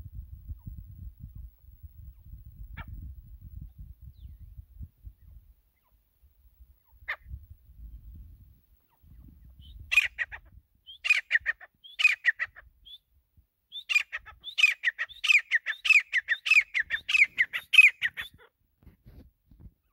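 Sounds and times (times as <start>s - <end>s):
francolin calling: 8.8s - 13.1s, 13.7s - 18.5s.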